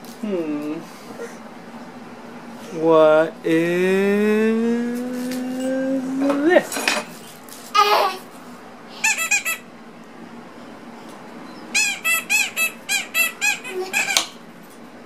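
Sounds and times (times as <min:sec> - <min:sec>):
rubber squeaky toy squeaking: 0:09.0 - 0:09.6, 0:11.7 - 0:14.3.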